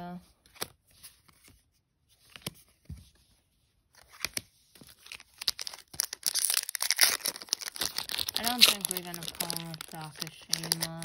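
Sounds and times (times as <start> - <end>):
foil wrapper crinkling and tearing: 4.9 - 11.0.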